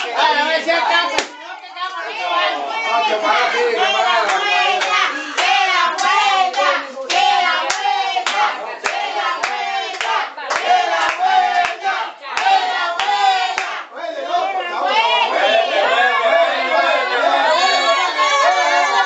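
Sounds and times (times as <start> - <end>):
crowd clapping in rhythm: 0.0 - 0.3, 1.0 - 1.4, 4.1 - 13.9
crowd chanting and shouting: 0.0 - 19.0.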